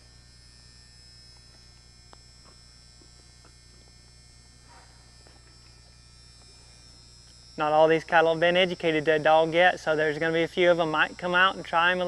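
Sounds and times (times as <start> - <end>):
faint mains hum: 0.0 - 12.0
high whine: 0.0 - 12.0
faint ticks: 1.3 - 2.6.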